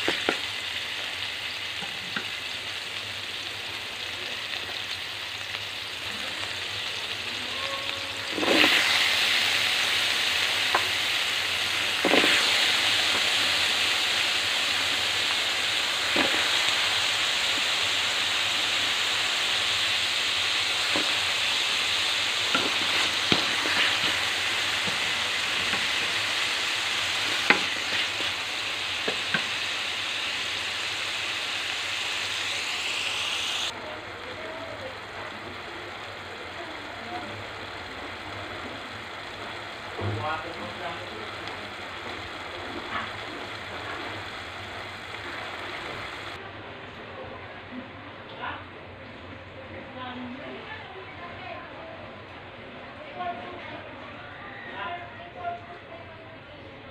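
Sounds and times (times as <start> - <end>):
vegetables sizzling in oil: 0.0 - 46.4
spatula scraping a pan: 7.6 - 9.8, 12.0 - 13.4, 20.8 - 28.4.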